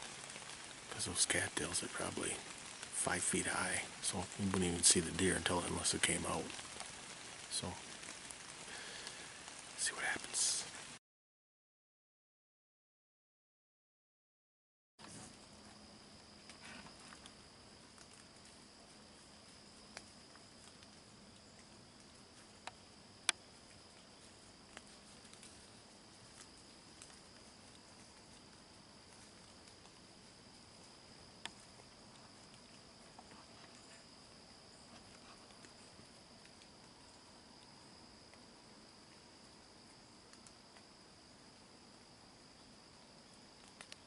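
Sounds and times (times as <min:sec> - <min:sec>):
high insect chirring: 0:15.3 - 0:44.0.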